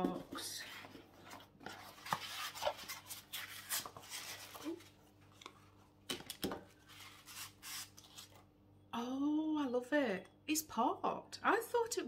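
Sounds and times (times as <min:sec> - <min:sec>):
cardboard rustling and scraping: 0:00.0 - 0:05.8.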